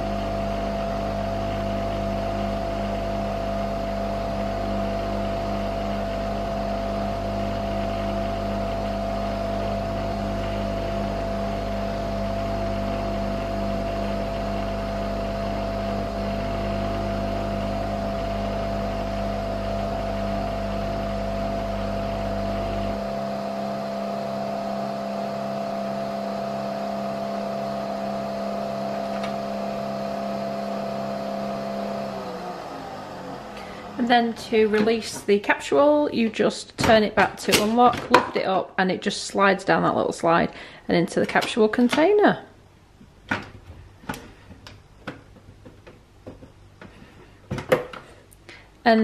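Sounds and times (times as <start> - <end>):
coffee machine humming: 0.0 - 35.5.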